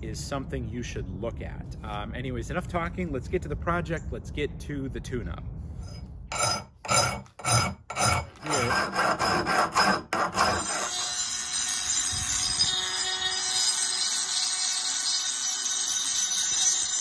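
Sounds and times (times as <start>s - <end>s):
file scraping steel: 5.8s - 17.0s
rotary tool grinding whine: 5.8s - 17.0s.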